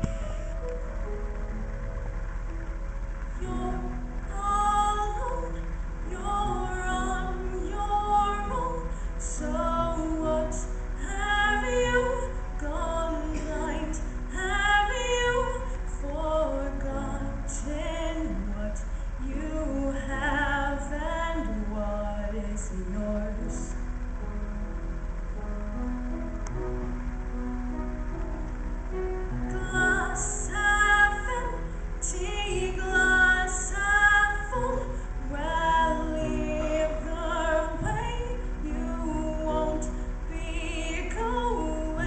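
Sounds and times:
girl singing through pa: 0:03.4 - 0:23.7, 0:29.6 - 0:42.0.

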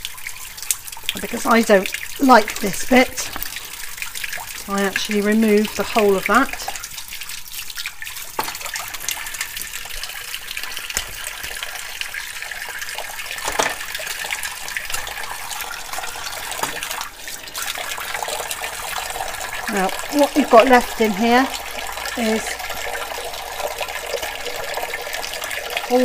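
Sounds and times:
water splashing: 0:00.0 - 0:26.0
tap running into a sink: 0:08.3 - 0:19.4
handling knocks: 0:13.4 - 0:13.9, 0:16.5 - 0:17.0.

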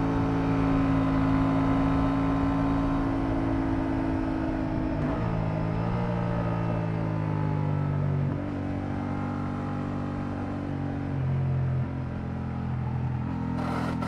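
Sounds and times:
motorcycle engine running: 0:12.2 - 0:14.0.

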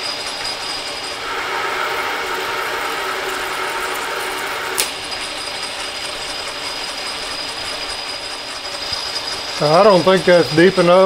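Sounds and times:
metal lathe running: 0:00.8 - 0:09.5
sharp click of tool tripping: 0:04.8 - 0:05.0.

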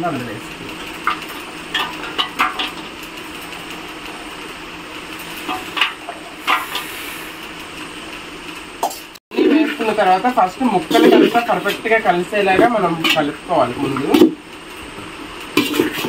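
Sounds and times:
steel bowls clinking and scraping: 0:05.2 - 0:07.0, 0:08.8 - 0:14.2
background hiss: 0:05.2 - 0:09.2.

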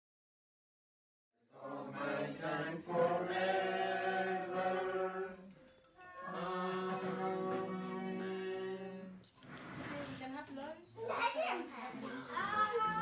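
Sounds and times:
group singing slow song: 0:01.4 - 0:09.7.

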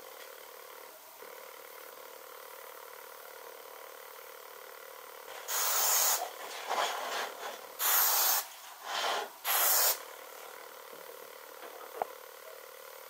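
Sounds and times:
aerosol spray can spraying: 0:05.5 - 0:06.3, 0:07.8 - 0:10.1.

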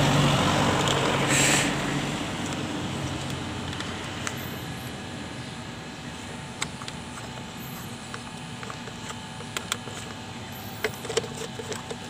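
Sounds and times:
low background hum: 0:03.0 - 0:12.0.

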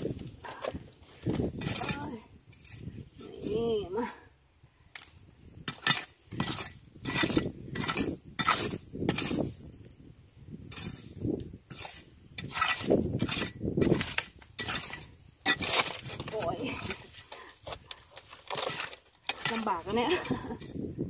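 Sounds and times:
metal rake scraping wet gravel: 0:05.7 - 0:09.6, 0:10.7 - 0:20.8.

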